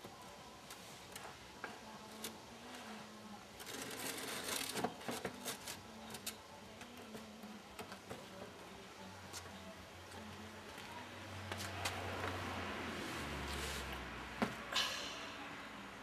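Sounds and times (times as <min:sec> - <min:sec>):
scraping rustle: 0:02.1 - 0:06.3, 0:13.0 - 0:14.0.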